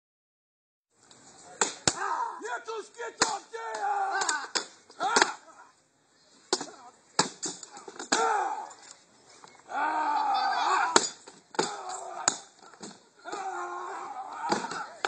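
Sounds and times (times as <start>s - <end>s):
weapons striking wooden shields: 3.2s - 5.4s, 6.5s - 8.4s, 10.9s - 13.5s, 14.4s - 15.0s.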